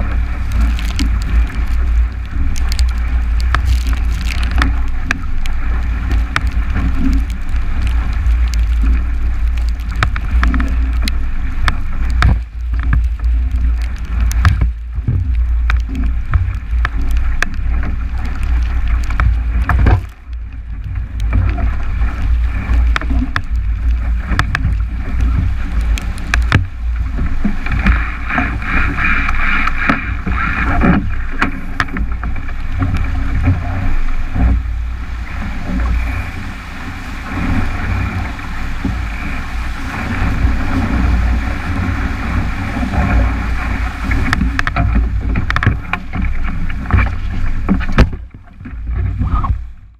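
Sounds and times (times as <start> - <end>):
rushing water: 0.0 - 49.9
wind buffeting microphone: 0.0 - 49.9
spray slapping hull: 20.8 - 49.6.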